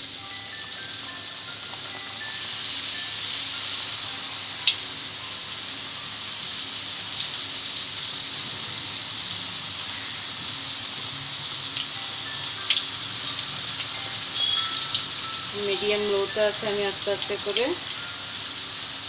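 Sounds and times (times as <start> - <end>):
deep-frying sizzle: 0.0 - 19.0
oil crackling: 6.7 - 19.0.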